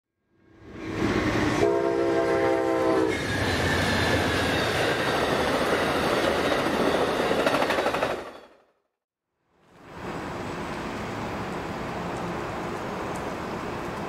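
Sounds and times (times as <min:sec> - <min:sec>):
train wheels rumbling on rails: 0:00.8 - 0:08.6
train horn chord: 0:01.6 - 0:03.1.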